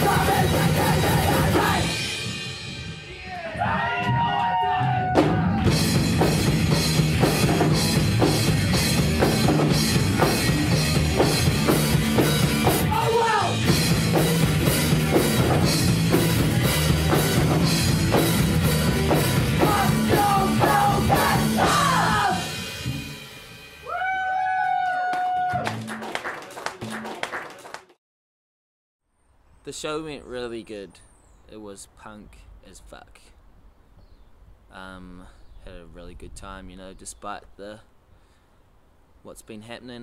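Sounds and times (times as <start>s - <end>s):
punk rock band playing live: 0.0s - 3.0s, 4.9s - 23.6s
pounding drum kit: 0.0s - 24.1s.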